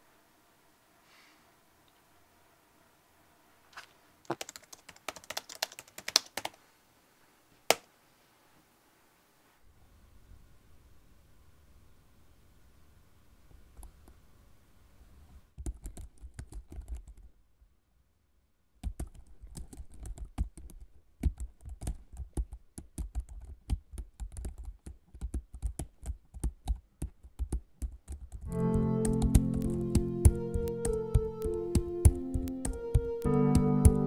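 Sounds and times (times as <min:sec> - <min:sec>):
computer keyboard typing: 0:04.3 - 0:06.6, 0:15.6 - 0:17.3, 0:18.8 - 0:34.0
music: 0:28.5 - 0:34.0.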